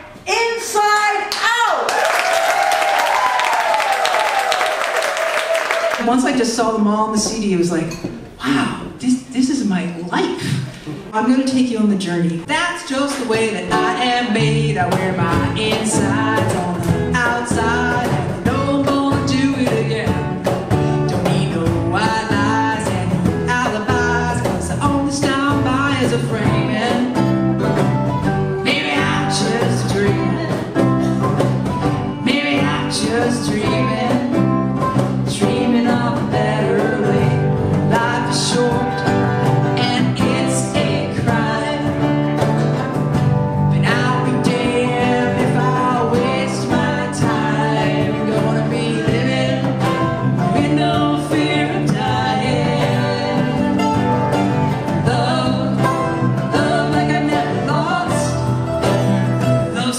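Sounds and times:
bass guitar: 12.3s - 59.9s
woman singing: 12.4s - 27.4s, 28.5s - 31.4s, 32.1s - 42.5s, 43.7s - 58.5s, 59.6s - 59.9s
harmony singer: 12.4s - 59.9s
mandolin: 12.4s - 59.9s
strummed acoustic guitar: 13.4s - 59.9s.

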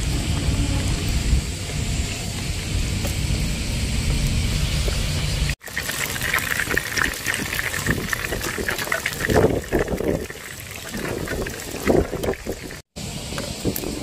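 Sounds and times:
fish deep-frying in oil: 3.0s - 14.0s.

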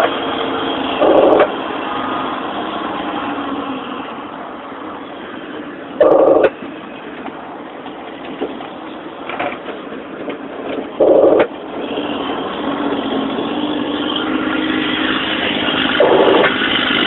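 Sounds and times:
diesel truck engine running: 0.0s - 3.8s, 7.4s - 17.0s.

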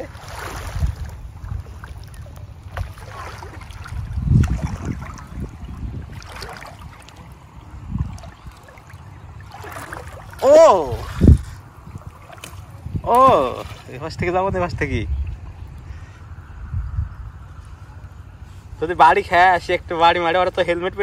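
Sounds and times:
water lapping and sloshing: 0.0s - 16.6s
wind rumbling on microphone: 0.0s - 21.0s.

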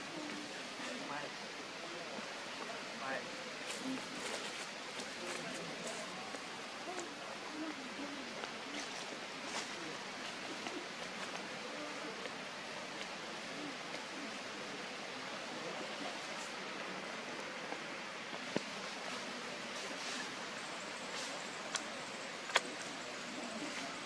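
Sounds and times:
outdoor background hiss: 0.0s - 24.0s.

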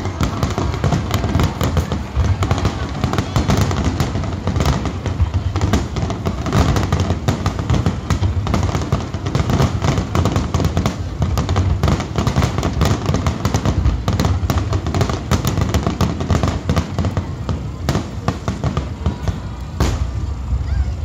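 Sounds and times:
fireworks bursting: 0.0s - 21.0s.

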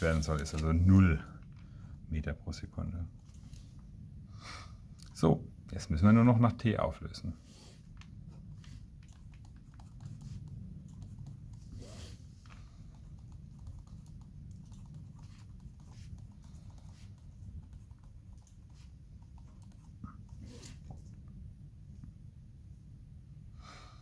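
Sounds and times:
low steady hum: 0.0s - 24.0s
pen scratching on paper: 8.6s - 21.0s.

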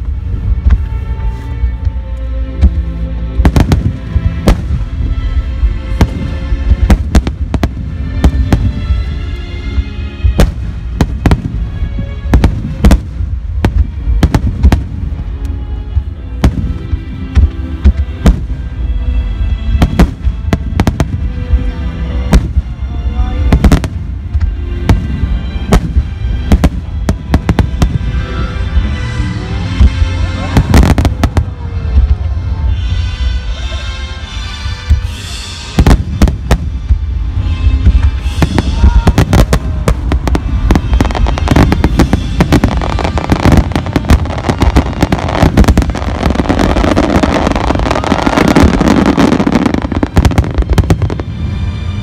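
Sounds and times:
fireworks booming: 3.4s - 5.1s, 5.9s - 9.0s, 10.2s - 15.2s, 23.5s - 28.9s, 34.9s - 51.4s
music over loudspeakers: 15.9s - 52.0s.

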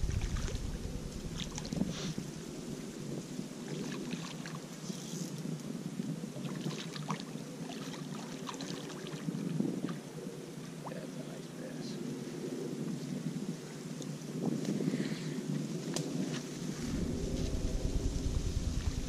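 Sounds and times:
wind buffeting the microphone: 0.0s - 4.2s, 9.0s - 19.0s.

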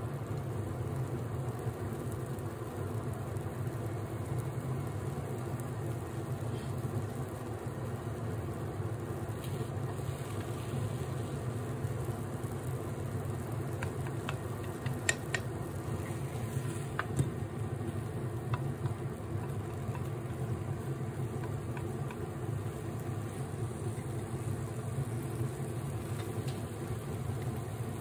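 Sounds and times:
kitchen fan humming: 0.0s - 28.0s
chopsticks clicking against pan: 13.7s - 15.6s, 18.4s - 20.5s, 21.2s - 22.2s.

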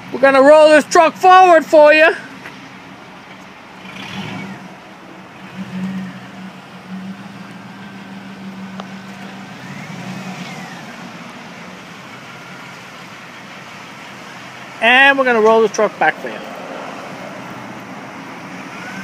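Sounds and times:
pickup truck engine running: 2.3s - 16.1s.

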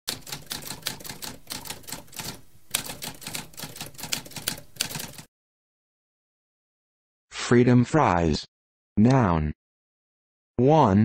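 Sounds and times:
typewriter keys clicking: 0.1s - 5.3s.

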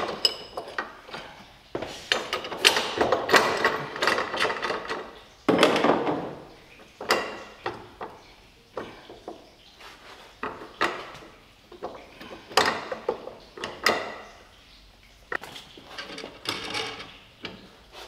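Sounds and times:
metal knocks and clunks: 0.0s - 9.5s.

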